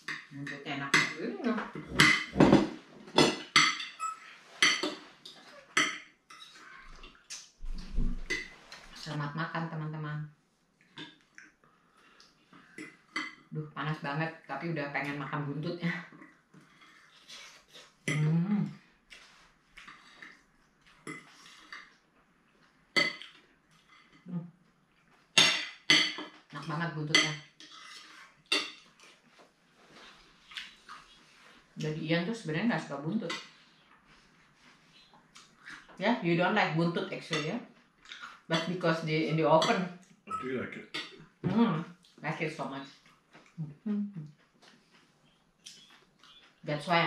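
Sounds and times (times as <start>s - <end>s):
cutlery clinking on plates: 1.8s - 6.6s, 25.4s - 26.4s, 27.2s - 28.9s.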